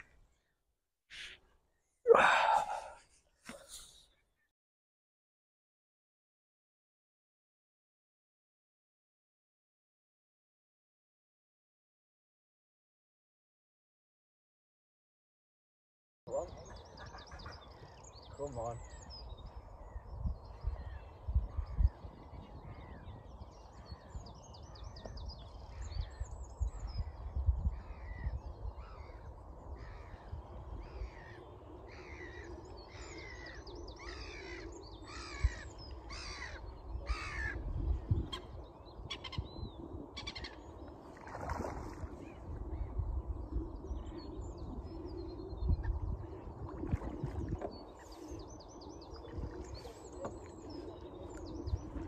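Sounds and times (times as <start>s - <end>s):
bird calling: 38.3s - 40.8s.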